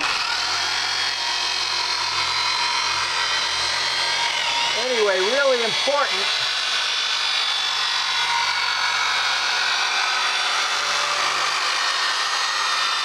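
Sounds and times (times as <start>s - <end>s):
rotary tool whine: 0.0s - 13.0s
sanding disc grinding paint: 0.0s - 13.0s.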